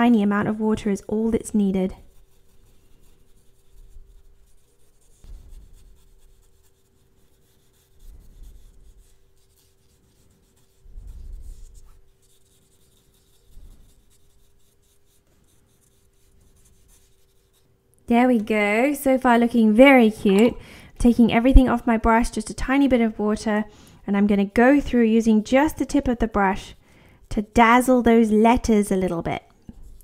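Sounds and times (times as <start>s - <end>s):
faint steady hum: 0.0s - 30.0s
paintbrush scratching on paper: 1.6s - 17.7s, 25.2s - 28.2s.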